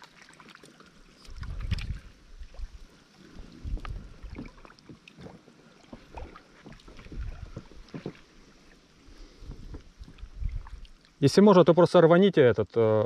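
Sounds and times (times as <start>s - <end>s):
water sloshing and splashing: 0.0s - 11.4s.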